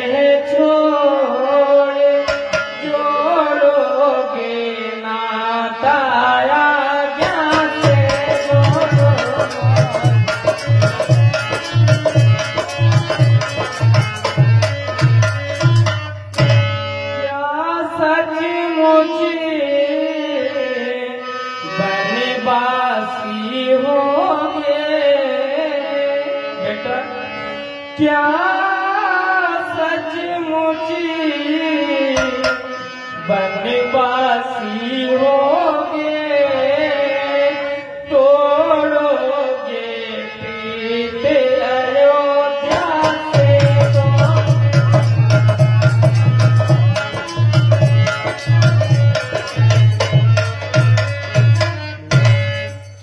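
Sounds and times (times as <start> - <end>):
person singing into a microphone: 0.0 - 52.9
hand drum fast beat: 7.8 - 16.5.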